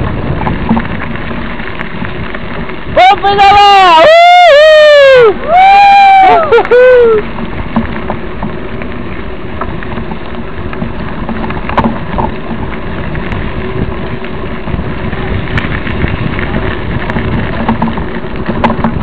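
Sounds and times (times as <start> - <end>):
bike tyres rolling on dirt: 0.0 - 19.0
sharp clicks and knocks: 9.6 - 13.4, 17.0 - 19.0.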